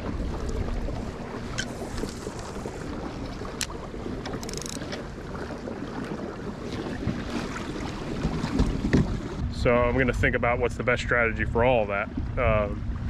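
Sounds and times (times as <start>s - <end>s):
water rushing along hull: 0.0s - 13.0s
wind buffeting microphone: 6.8s - 13.0s.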